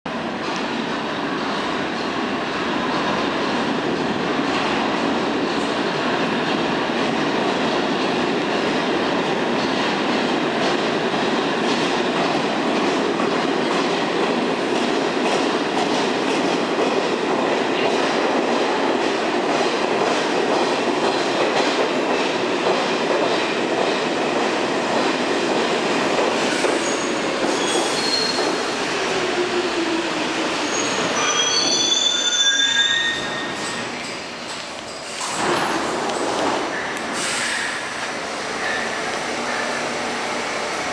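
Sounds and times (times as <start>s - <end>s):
subway train wheels rumbling: 0.1s - 40.9s
high-pitched brake squeals: 26.7s - 28.6s, 30.6s - 33.8s.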